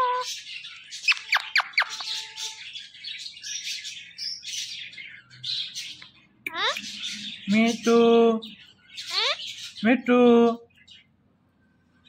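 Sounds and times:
parakeet squawking: 0:00.0 - 0:02.8, 0:05.6 - 0:07.9, 0:08.6 - 0:09.8.

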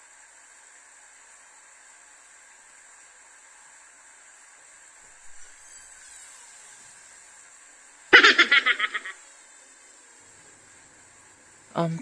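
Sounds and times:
faint steady hiss: 0:00.0 - 0:12.0
person laughing: 0:08.2 - 0:09.2.

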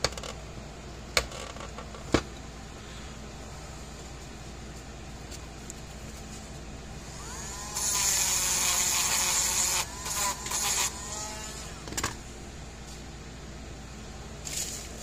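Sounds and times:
rotary tool whining and grinding: 0:07.0 - 0:12.1.

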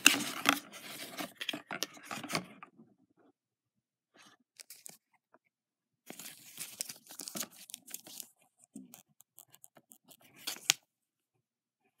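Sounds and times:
paper rustling and crinkling: 0:00.0 - 0:02.5, 0:06.1 - 0:08.3.

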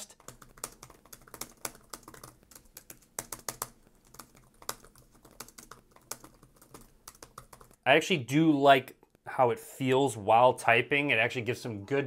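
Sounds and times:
laptop keyboard typing: 0:00.1 - 0:07.8.

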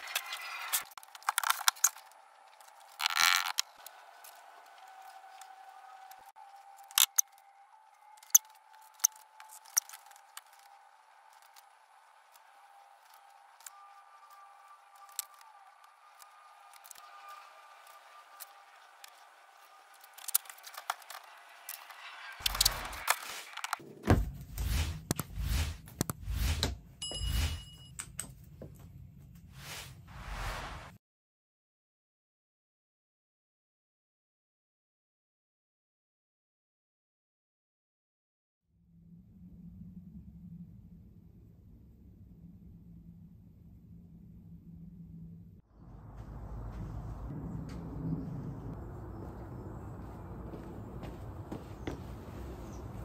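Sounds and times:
metal sliding and scraping: 0:13.0 - 0:27.8.

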